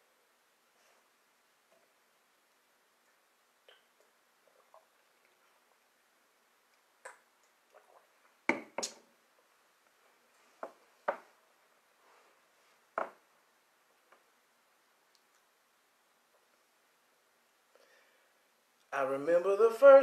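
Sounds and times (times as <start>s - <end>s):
knocks and taps on a table: 8.5s - 8.9s.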